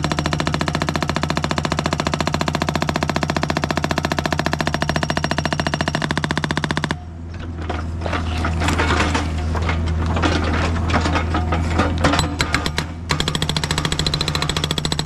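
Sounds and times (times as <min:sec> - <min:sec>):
hydraulic breaker hammering rock: 0:12.0 - 0:15.0.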